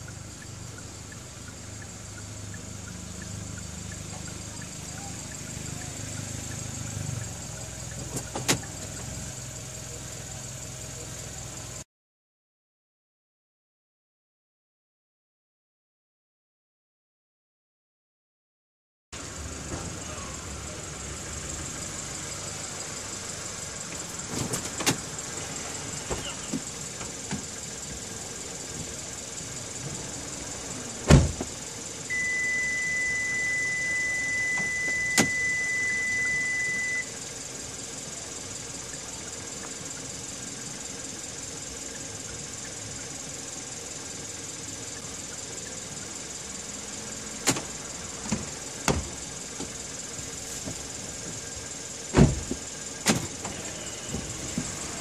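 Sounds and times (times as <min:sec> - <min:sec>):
car engine idling: 0:00.0 - 0:11.8, 0:19.2 - 0:55.0
car door clicks and knocks: 0:08.0 - 0:08.8, 0:24.3 - 0:25.0, 0:31.1 - 0:31.5, 0:47.4 - 0:49.8, 0:52.1 - 0:54.8
car door opening: 0:08.0 - 0:08.8, 0:23.9 - 0:25.2, 0:26.0 - 0:27.6, 0:31.0 - 0:33.6, 0:34.2 - 0:37.0, 0:47.4 - 0:49.8, 0:52.1 - 0:55.0.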